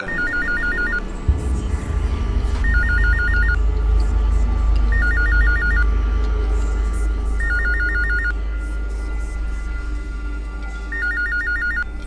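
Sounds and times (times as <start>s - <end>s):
electronic telephone ringing: 0.0s - 1.0s, 2.7s - 3.6s, 5.0s - 5.8s, 7.4s - 8.3s, 10.9s - 11.8s
background music with deep bass: 0.0s - 12.0s.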